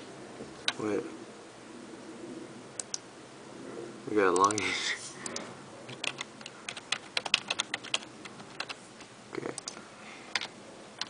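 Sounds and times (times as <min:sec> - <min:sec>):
keyboard typing clicks: 0:02.8 - 0:03.0, 0:04.4 - 0:08.8, 0:09.4 - 0:11.0.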